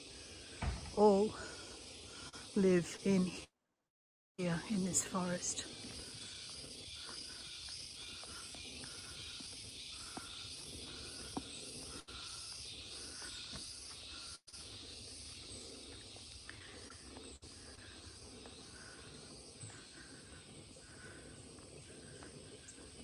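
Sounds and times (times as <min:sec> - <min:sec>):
insects pulsing buzz: 0:00.0 - 0:03.5, 0:04.4 - 0:23.0.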